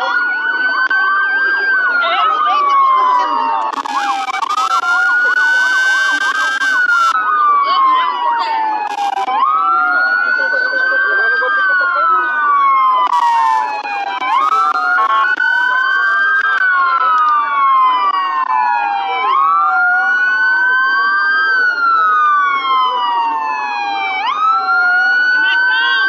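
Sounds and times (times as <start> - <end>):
emergency sirens wailing: 0.0 - 26.0.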